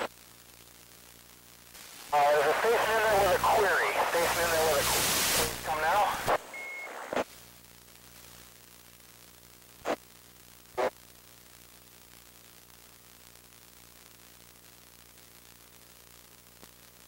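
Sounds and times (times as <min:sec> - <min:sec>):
radio receiver hiss: 0:00.0 - 0:08.6, 0:09.8 - 0:11.0
short bursts of static: 0:00.0 - 0:11.2.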